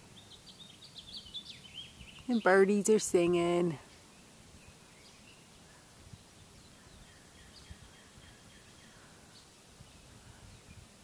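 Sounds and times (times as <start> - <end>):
background hiss: 0.0 - 11.0
faint birdsong: 0.0 - 11.0.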